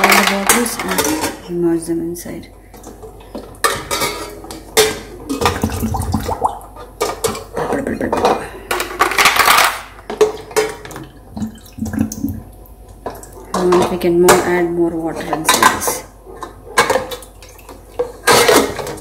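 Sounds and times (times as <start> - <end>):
water sloshing: 5.2 - 7.4.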